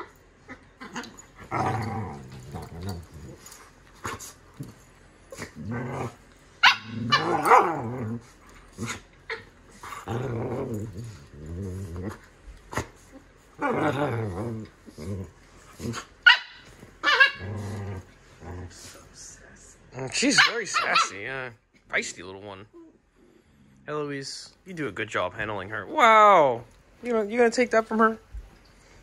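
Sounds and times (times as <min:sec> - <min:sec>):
dogs growling: 0:00.0 - 0:16.2, 0:17.0 - 0:19.2
dog yapping: 0:06.6 - 0:07.7, 0:16.2 - 0:17.5, 0:20.3 - 0:21.2.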